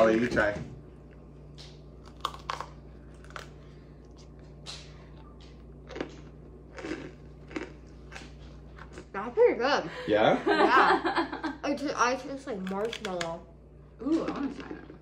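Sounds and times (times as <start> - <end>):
crunchy chewing: 1.5 - 9.2.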